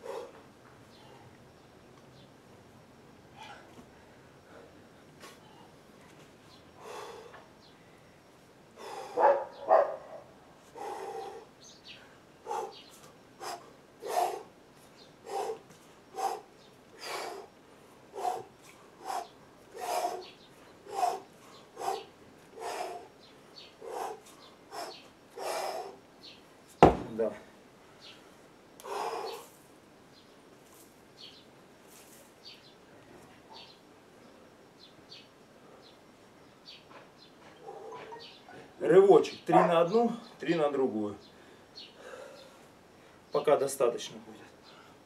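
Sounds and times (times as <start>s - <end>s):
man breathing forcefully: 6.8s - 7.5s, 8.7s - 9.3s, 10.7s - 14.6s, 15.2s - 23.2s, 23.8s - 26.0s, 28.8s - 29.6s
kettlebell thud on ground: 26.8s - 27.2s.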